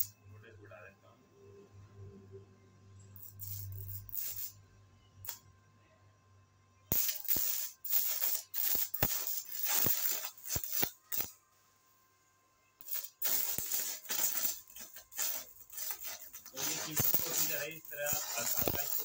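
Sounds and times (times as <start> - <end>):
welding arc crackling: 3.2 - 4.6, 6.9 - 11.4, 12.8 - 19.0.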